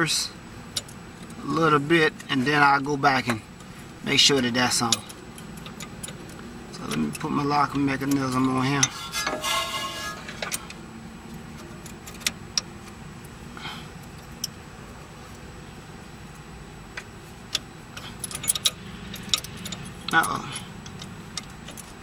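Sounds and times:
metal parts clinking: 0:18.0 - 0:21.9.

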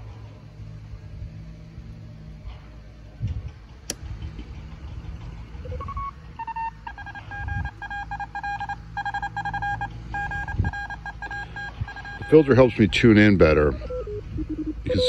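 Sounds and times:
morse code tone: 0:05.7 - 0:13.9.

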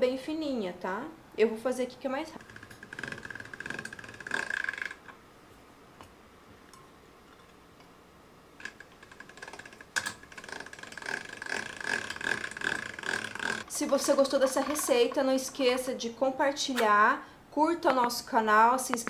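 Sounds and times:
pasta machine gear clicking: 0:02.4 - 0:05.1, 0:08.6 - 0:15.5.

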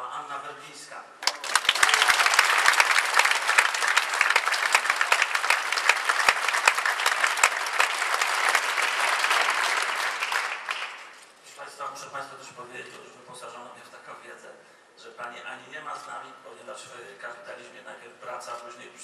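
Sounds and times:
audience applauding: 0:01.2 - 0:11.3.

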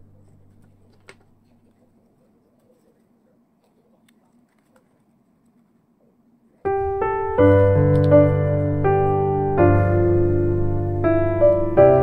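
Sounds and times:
piano music: 0:06.7 - 0:12.0.

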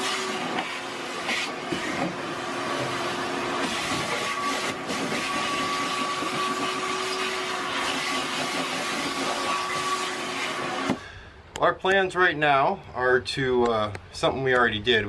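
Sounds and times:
vacuum cleaner running: 0:00.0 - 0:11.1.

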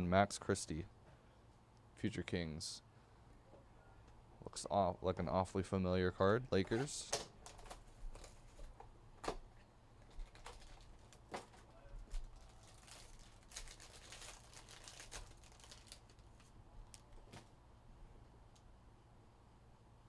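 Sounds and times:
foil wrapper crinkling: 0:10.0 - 0:17.2.

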